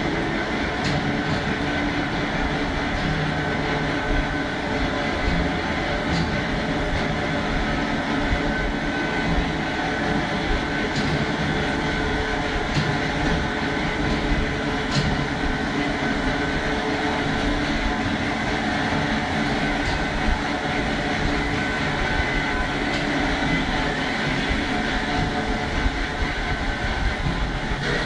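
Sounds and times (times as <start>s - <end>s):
cart mechanical rumble: 0.0s - 28.0s.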